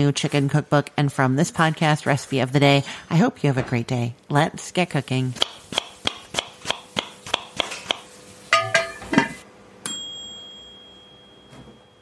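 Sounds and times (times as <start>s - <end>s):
bell-like ding: 9.8s - 12.0s.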